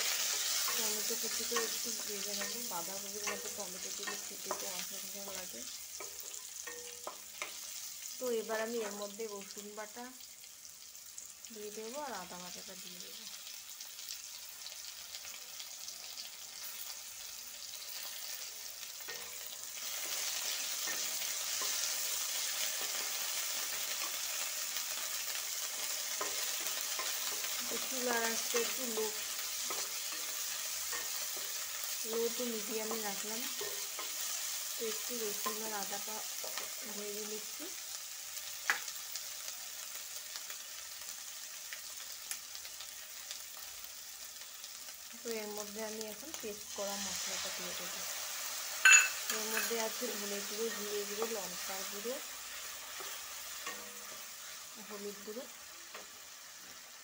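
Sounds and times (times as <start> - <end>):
paste sizzling in hot oil: 0.0 - 57.0
wooden spatula stirring in a pan: 17.9 - 37.0.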